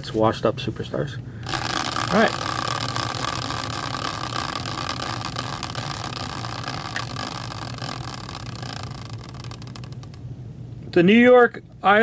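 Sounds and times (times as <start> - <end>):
caster wheel whirring: 1.4 - 10.2.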